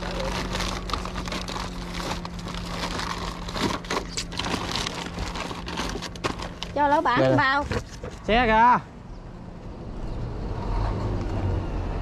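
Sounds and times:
paper and plastic sacks rustling: 0.0s - 8.4s.

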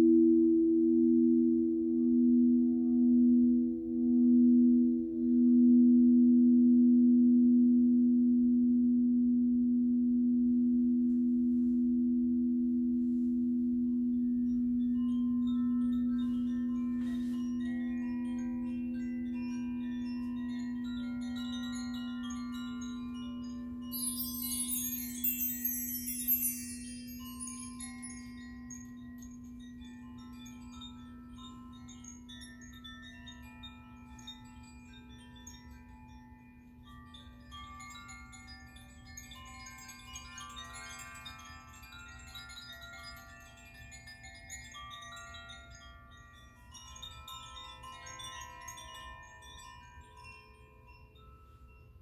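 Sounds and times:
singing bowl hum: 0.0s - 52.0s
metal chimes tinkling: 14.1s - 52.0s.

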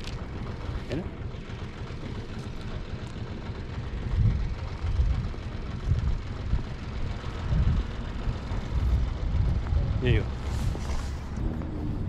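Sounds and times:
wind buffeting microphone: 3.3s - 12.0s.

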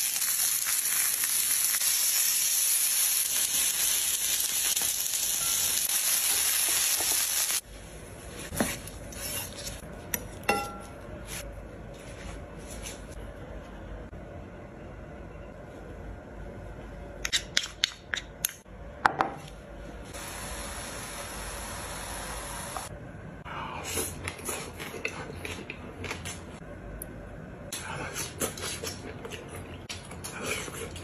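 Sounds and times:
steady hiss: 20.2s - 22.9s.

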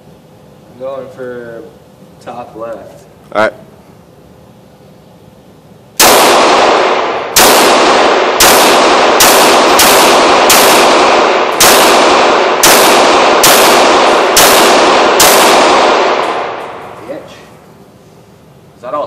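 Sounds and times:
pistol shots ringing indoors: 6.0s - 17.0s.

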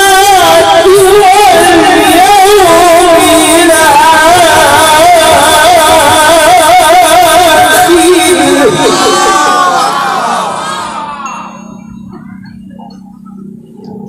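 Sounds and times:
man singing through loudspeaker: 0.0s - 10.7s.

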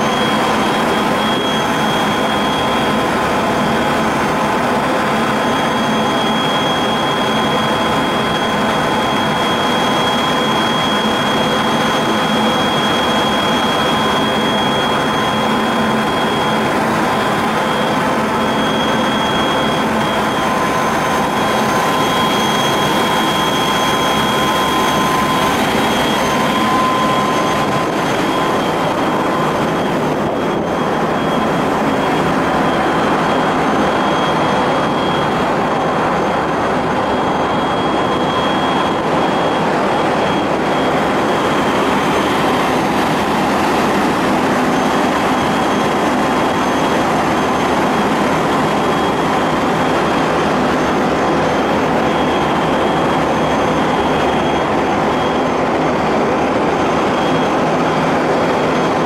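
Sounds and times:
ship machinery drone: 0.0s - 59.0s
faint whining tones: 5.4s - 46.6s.

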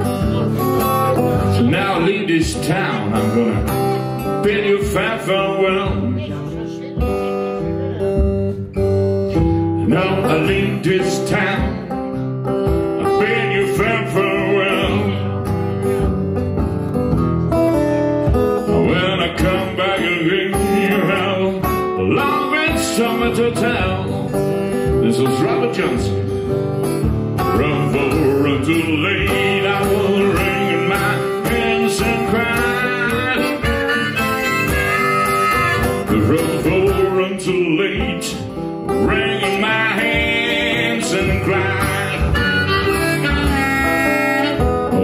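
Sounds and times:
acoustic guitar strumming: 0.0s - 45.0s
harmonica solo: 32.7s - 36.2s, 41.5s - 45.0s.

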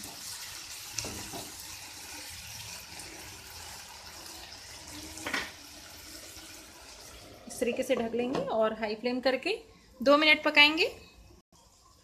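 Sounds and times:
vegetables sizzling in a frying pan: 0.0s - 7.9s.

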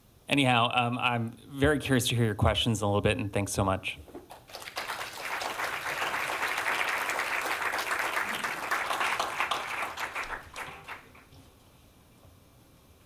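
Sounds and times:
audience applauding: 4.3s - 11.3s.

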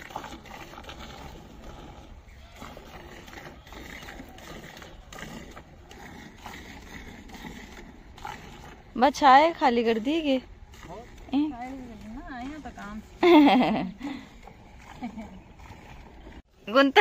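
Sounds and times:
milk squirting into a bucket: 0.0s - 13.0s.

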